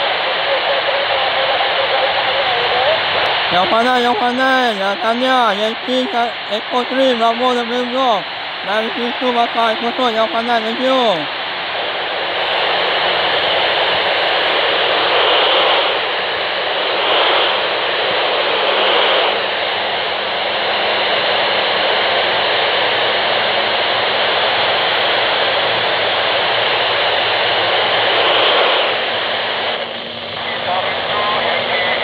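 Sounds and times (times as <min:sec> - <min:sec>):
radio static hiss: 0:00.0 - 0:32.0.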